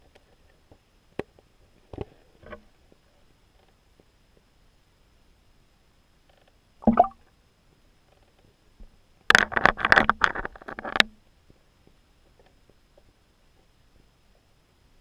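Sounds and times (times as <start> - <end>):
sharp splashing clicks: 6.8 - 7.2
underwater knock: 6.8 - 7.2.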